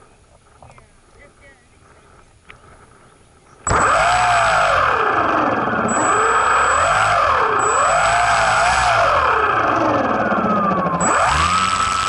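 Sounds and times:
model airplane motor whining: 3.6s - 12.0s.

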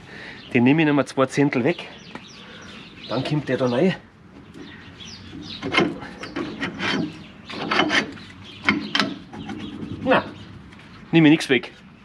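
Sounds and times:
metal rubbing on metal: 4.6s - 10.6s.

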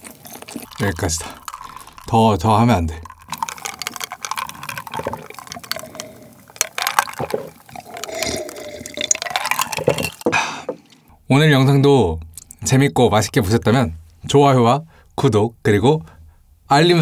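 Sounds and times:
person sipping and swallowing: 0.0s - 11.1s.

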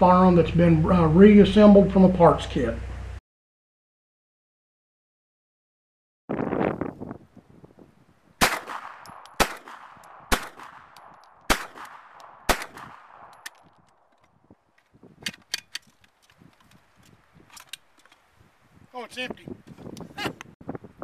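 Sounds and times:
pistol shots with echo: 8.4s - 13.4s
gun handling clicks: 8.4s - 14.4s, 15.2s - 18.3s.

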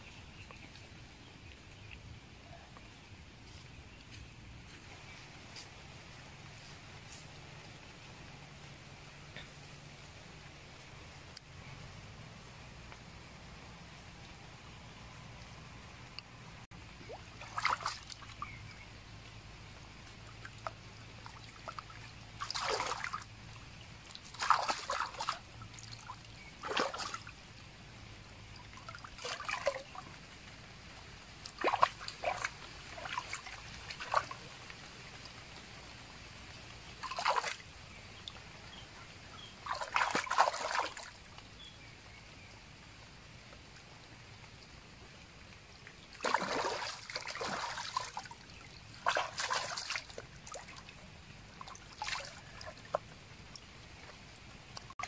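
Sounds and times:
faint stream running: 0.0s - 55.0s
water splashing and pouring: 17.0s - 18.8s, 19.8s - 41.5s, 45.5s - 55.0s.

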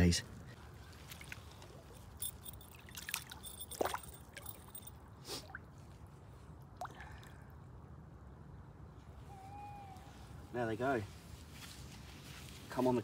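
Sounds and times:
trickling water: 0.7s - 7.6s
small water splashes: 0.8s - 7.6s.

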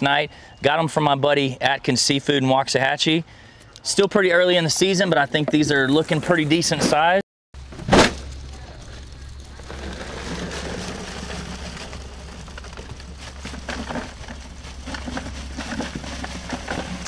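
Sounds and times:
crawfish rustling and clicking in sack: 7.6s - 17.0s.

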